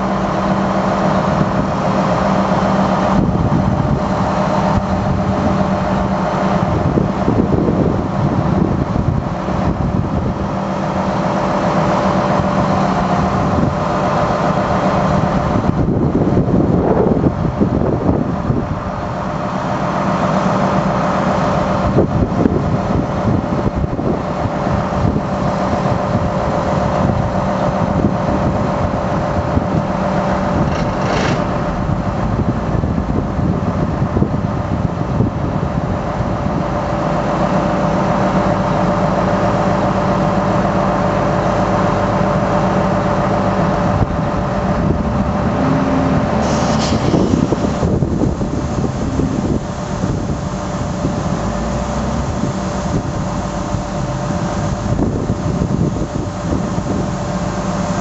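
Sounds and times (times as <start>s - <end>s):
diesel engine running: 0.0s - 58.0s
hydraulic hisses: 46.3s - 53.6s.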